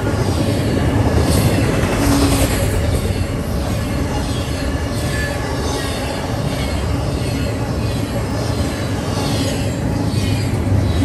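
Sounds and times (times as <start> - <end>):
freight train rumbling past: 0.0 - 11.0.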